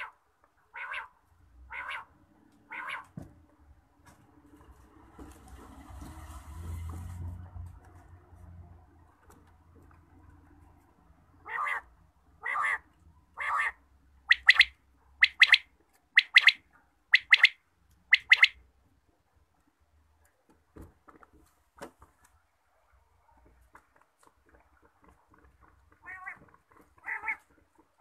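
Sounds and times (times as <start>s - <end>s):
quail calling: 0.0s - 2.1s, 2.7s - 3.1s, 11.4s - 18.6s.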